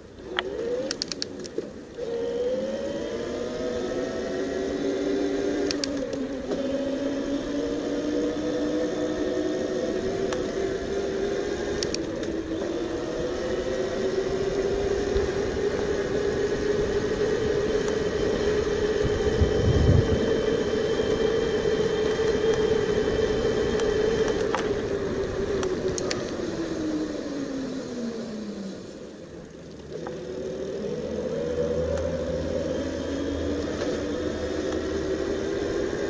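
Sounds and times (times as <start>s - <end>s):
electric bike motor whining: 0.0s - 36.0s
sharp clicks: 0.3s - 1.7s, 5.6s - 6.6s, 11.8s - 12.4s, 25.6s - 26.4s.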